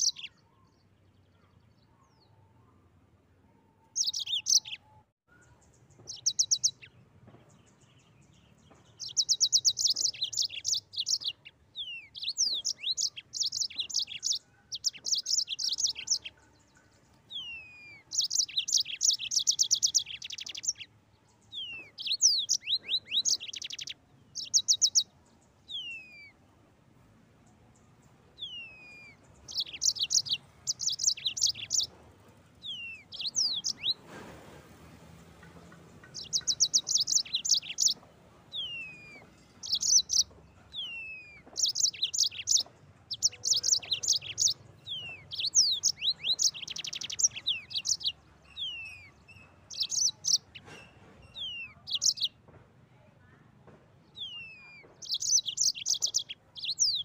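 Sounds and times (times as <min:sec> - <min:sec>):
canary singing trills and whistles: 0:00.0 - 0:00.4, 0:03.8 - 0:07.0, 0:09.0 - 0:16.4, 0:17.3 - 0:20.9, 0:21.5 - 0:26.4, 0:28.4 - 0:31.9, 0:32.6 - 0:34.1, 0:36.1 - 0:52.4, 0:54.2 - 0:57.0.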